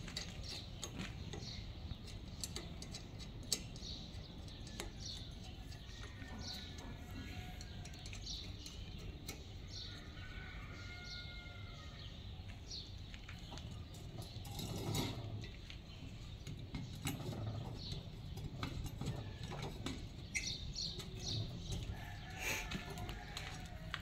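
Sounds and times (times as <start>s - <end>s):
metal clicks and knocks: 0.0s - 9.6s, 13.1s - 22.0s.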